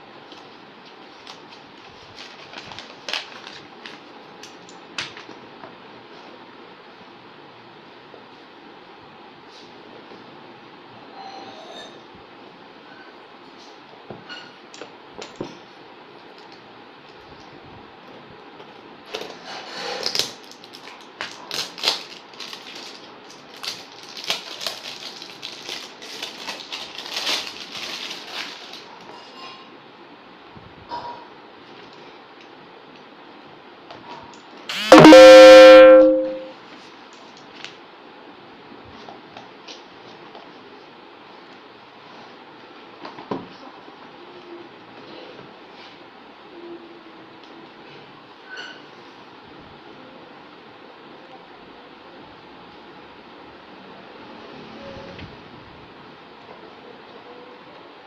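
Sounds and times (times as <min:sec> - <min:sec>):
paper crinkling: 0:00.3 - 0:04.1, 0:20.0 - 0:28.9.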